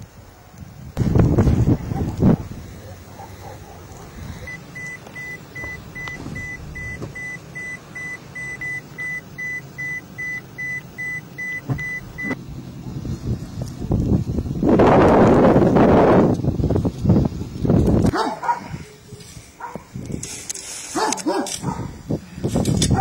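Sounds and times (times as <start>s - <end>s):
low outdoor rumble: 0.0s - 23.0s
short high electronic beeps: 4.5s - 12.4s.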